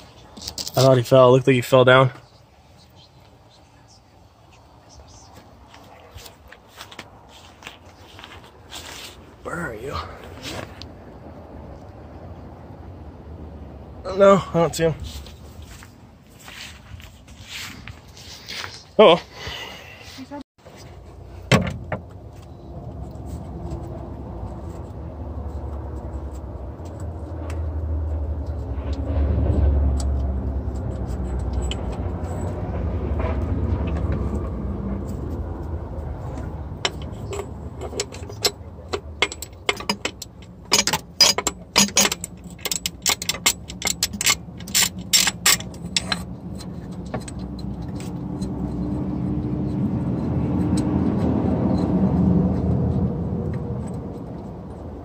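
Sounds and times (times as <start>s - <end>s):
low vehicle rumble: 0.0s - 18.5s, 19.5s - 55.0s
sharp clicks and clinks: 36.3s - 51.9s.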